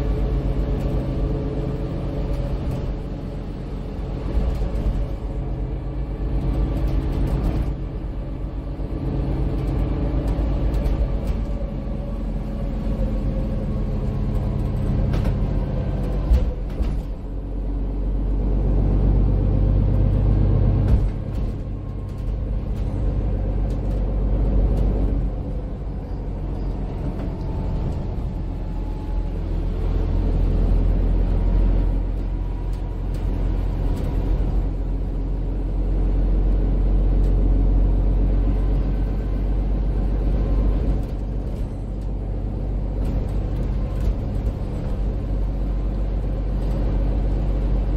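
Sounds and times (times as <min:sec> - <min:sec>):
bus engine and road rumble: 0:00.0 - 0:47.9
faint drivetrain whine: 0:00.0 - 0:47.9
sharp knocks from bus body: 0:20.8 - 0:22.4.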